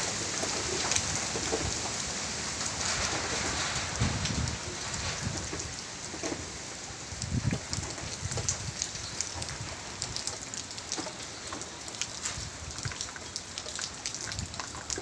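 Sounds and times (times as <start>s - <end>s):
heavy rain falling: 0.0s - 15.0s
raindrop ticks: 0.4s - 2.0s, 7.1s - 15.0s.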